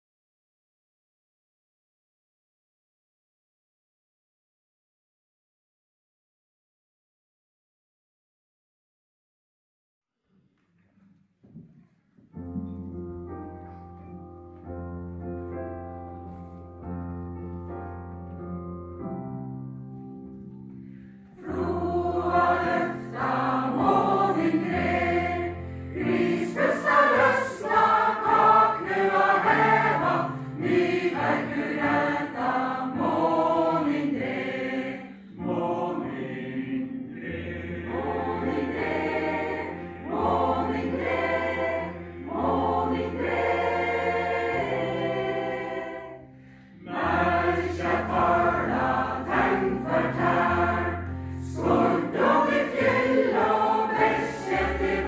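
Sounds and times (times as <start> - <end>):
mixed choir singing: 21.4 - 55.0.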